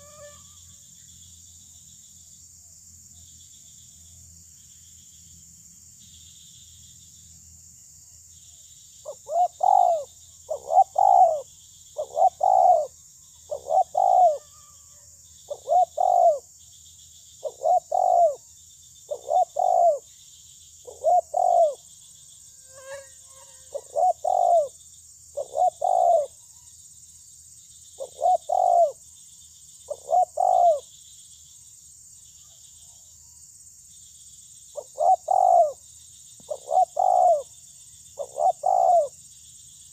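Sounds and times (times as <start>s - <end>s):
insects chirping: 0.0s - 39.9s
dove cooing: 9.1s - 14.5s, 15.5s - 16.5s, 17.4s - 18.4s, 19.1s - 20.0s, 20.9s - 21.8s, 23.7s - 24.8s, 25.4s - 26.4s, 28.0s - 29.0s, 29.9s - 30.8s, 34.8s - 35.8s, 36.4s - 37.5s, 38.2s - 39.1s.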